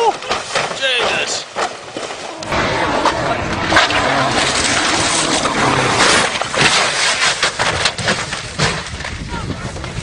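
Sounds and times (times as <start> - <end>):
rushing noise: 2.3 - 7.8
rally car engine: 2.4 - 7.2.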